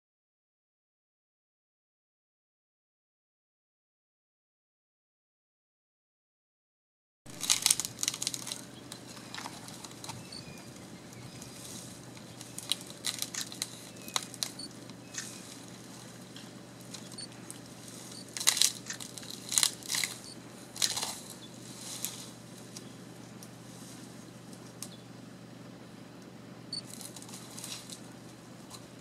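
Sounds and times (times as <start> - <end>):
elephant cracking and tearing wood: 7.3 - 24.9, 26.8 - 29.0.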